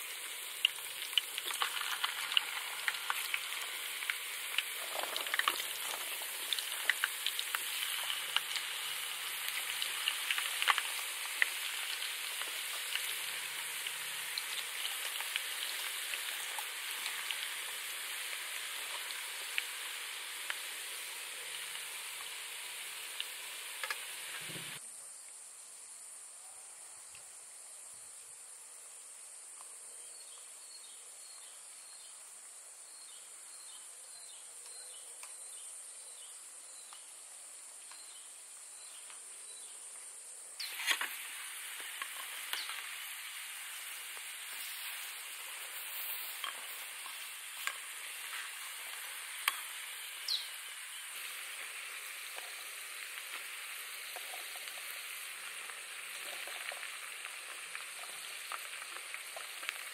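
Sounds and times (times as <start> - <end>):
food sizzling in a pan: 0.0 - 24.8, 37.5 - 59.9
faint insect chirp: 0.0 - 59.9
insects humming: 0.0 - 59.9.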